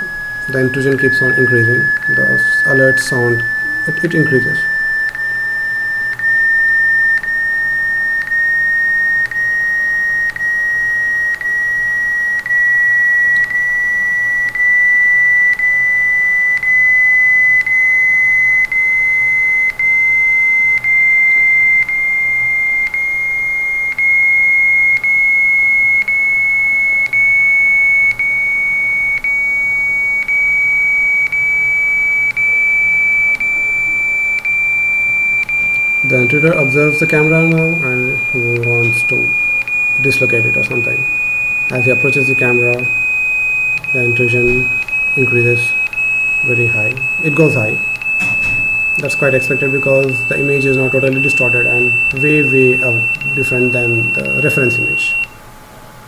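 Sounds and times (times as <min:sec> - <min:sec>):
rising electronic beeps: 0:00.0 - 0:55.4
clicks between beeps: 0:29.2 - 0:55.4.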